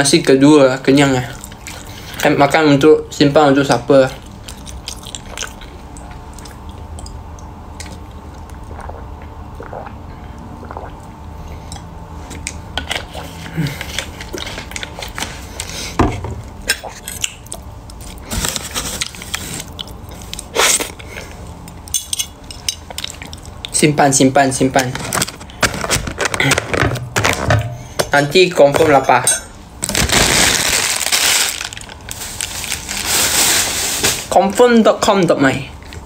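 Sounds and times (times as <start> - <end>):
chewing: 4.2 - 10.0, 19.0 - 21.9, 22.8 - 23.8.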